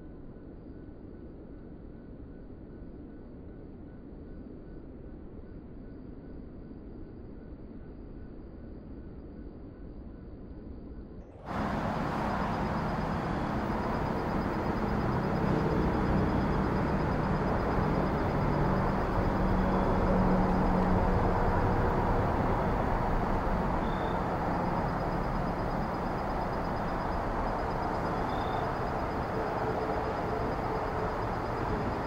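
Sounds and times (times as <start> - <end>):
faint high pulsing trill: 11.5 - 32.0
rumbling hiss: 11.5 - 32.0.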